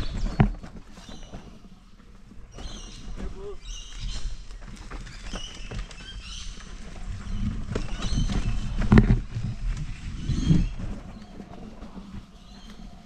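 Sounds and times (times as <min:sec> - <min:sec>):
tyre rumble on dirt trail: 0:00.0 - 0:13.0
wheel knocking on rocks: 0:02.5 - 0:11.6
wind on microphone: 0:06.2 - 0:13.0.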